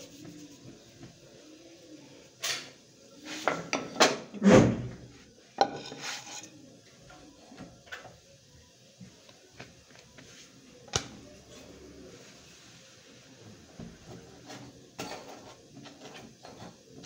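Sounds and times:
metal cookware clattering: 0:05.6 - 0:06.6, 0:14.4 - 0:17.0.

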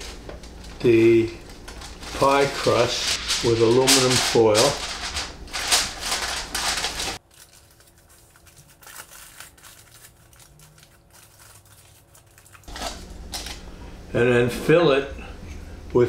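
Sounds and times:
faint rustling: 0:00.0 - 0:07.2
aluminum foil crinkling: 0:00.0 - 0:13.7.

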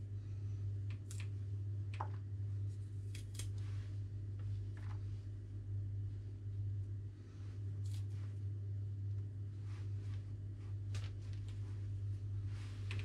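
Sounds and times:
steady low hum: 0:00.0 - 0:13.0
knife snipping stems: 0:03.0 - 0:03.6.

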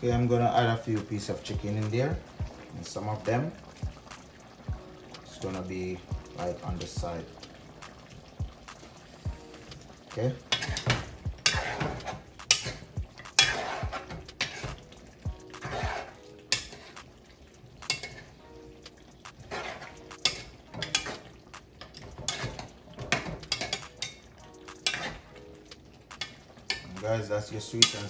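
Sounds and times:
metal utensils knocking on pot: 0:10.1 - 0:14.8, 0:15.5 - 0:17.0, 0:17.8 - 0:18.3, 0:19.3 - 0:25.3, 0:26.1 - 0:28.0.

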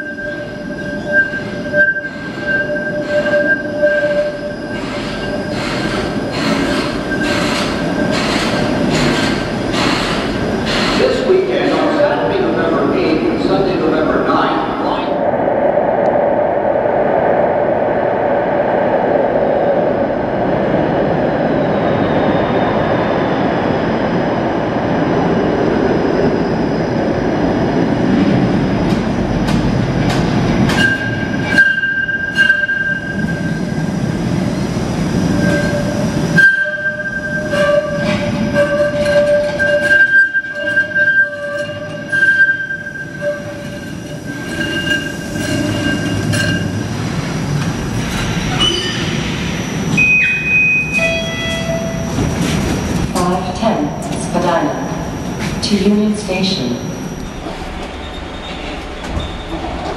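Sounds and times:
wheels squealing: 0:00.0 - 0:11.2, 0:35.3 - 0:46.9
streetcar rumbling: 0:00.0 - 0:59.9
wheels clicking and knocking on rails: 0:04.7 - 0:12.0, 0:28.8 - 0:33.4.

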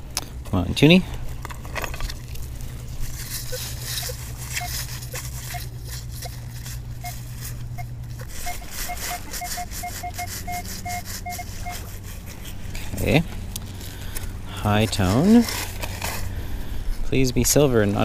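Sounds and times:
faint clicks and scrapes: 0:00.4 - 0:17.1
metal detector beeps: 0:03.4 - 0:06.4, 0:07.0 - 0:11.9.

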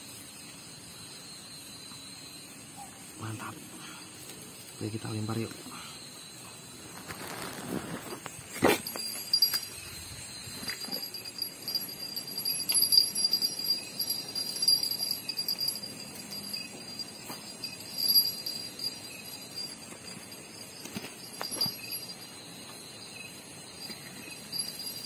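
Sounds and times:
high pulsing jingle: 0:08.7 - 0:25.0.

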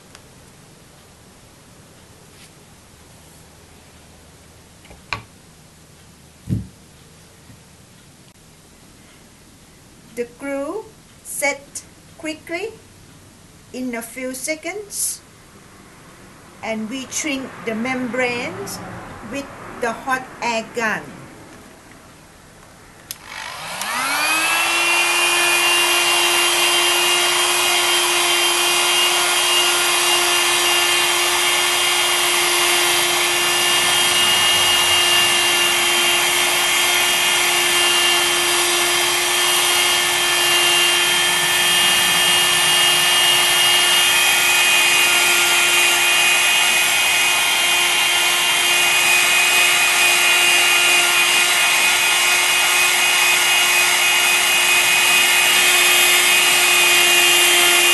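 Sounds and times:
hot air gun fan whining: 0:23.0 - 0:57.9.

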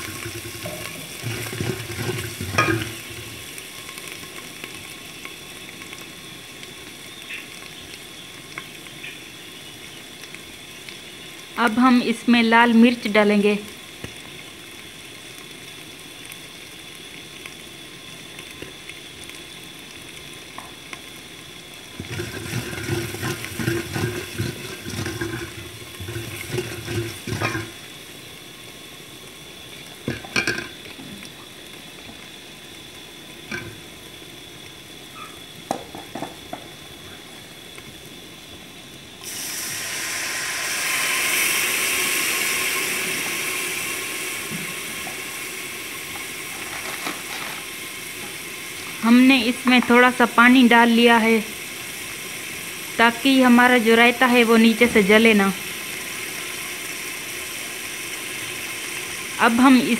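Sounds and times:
paste sizzling in hot oil: 0:00.0 - 0:59.9
water poured into hot oil hissing: 0:00.0 - 0:59.9
spoon scraping a metal pot: 0:22.0 - 0:27.7.

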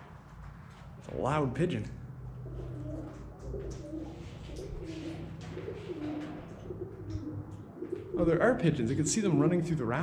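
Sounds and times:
pigeons cooing: 0:02.2 - 0:08.9.

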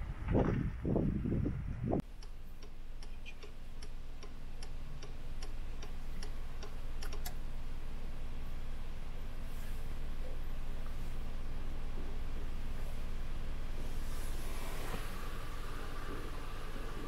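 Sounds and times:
car engine idling hum: 0:00.9 - 0:17.0
car indicator ticking: 0:02.2 - 0:07.4.

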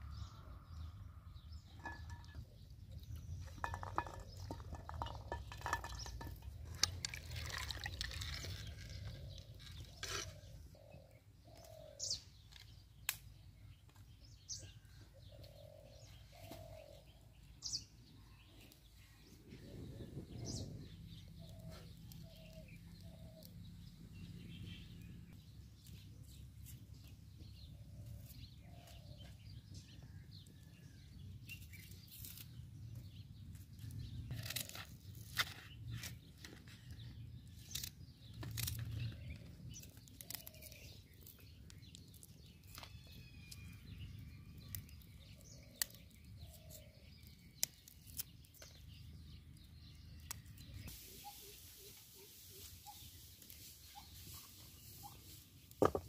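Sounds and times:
faint bird chirps: 0:50.1 - 0:56.0.

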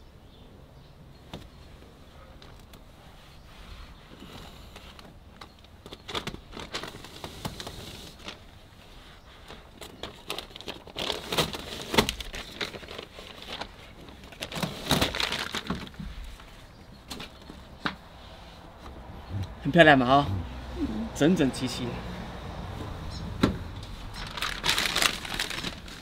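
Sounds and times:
insulation sheets crinkling: 0:04.8 - 0:18.0, 0:23.9 - 0:26.0
backing paper peeling: 0:24.1 - 0:26.0.

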